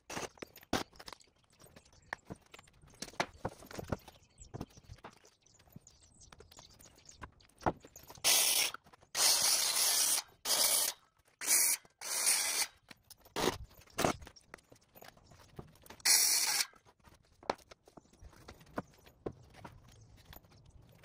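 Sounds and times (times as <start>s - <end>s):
circular saw cutting wood: 8.3s - 12.7s, 16.1s - 16.7s.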